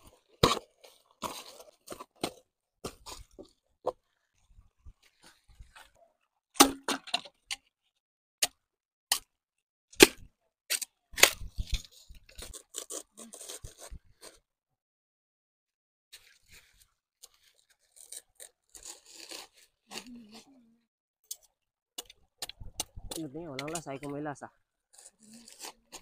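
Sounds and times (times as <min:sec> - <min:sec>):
knife scraping bamboo: 0:00.0 - 0:04.2, 0:10.0 - 0:14.5, 0:16.2 - 0:20.6, 0:24.8 - 0:26.0.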